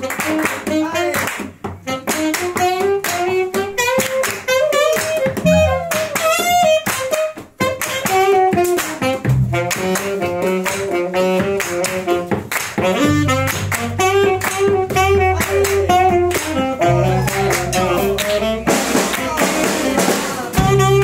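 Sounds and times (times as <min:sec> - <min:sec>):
hands clapping steady beat: 0:00.0 - 0:21.0
pitched melody line: 0:04.9 - 0:06.9, 0:12.9 - 0:20.0.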